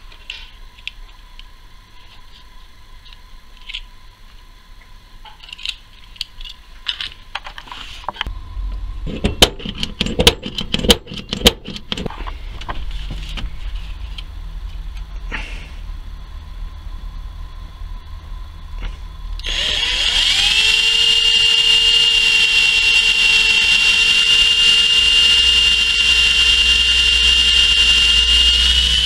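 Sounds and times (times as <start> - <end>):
small metal clicks: 5.3 - 7.6
cordless drill running: 19.4 - 29.0.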